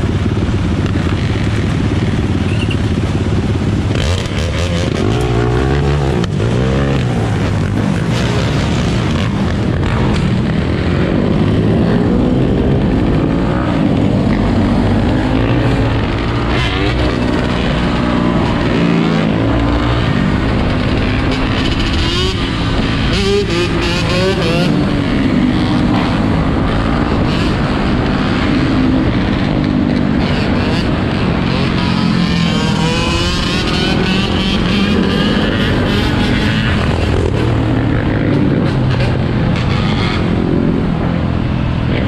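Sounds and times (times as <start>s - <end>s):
dirt bike engines revving: 0.0s - 42.0s.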